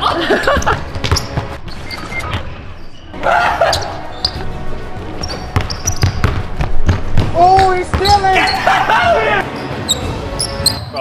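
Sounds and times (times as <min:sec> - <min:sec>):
background music: 0:00.0 - 0:11.0
basketball bouncing: 0:00.5 - 0:01.6, 0:05.2 - 0:08.3.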